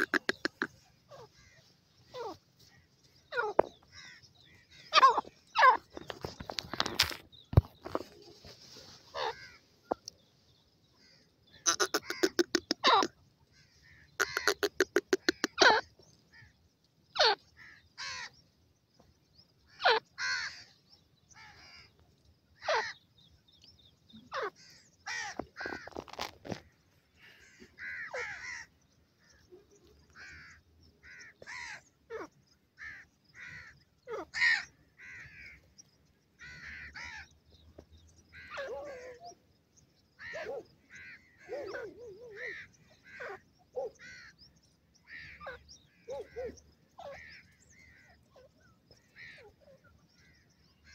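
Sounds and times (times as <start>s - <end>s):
bird giving harsh calls: 0.0s - 2.4s, 3.3s - 6.9s, 11.6s - 13.2s, 13.8s - 15.9s.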